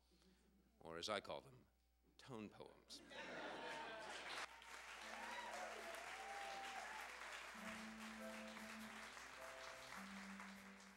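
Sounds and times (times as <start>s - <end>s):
audience applauding: 3.7s - 10.9s
music playing: 6.6s - 10.9s.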